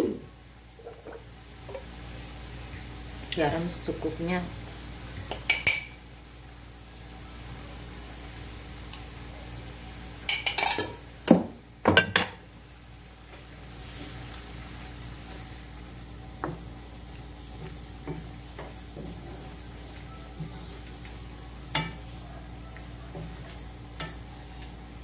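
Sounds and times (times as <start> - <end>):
low steady sizzle: 0.0 - 25.0.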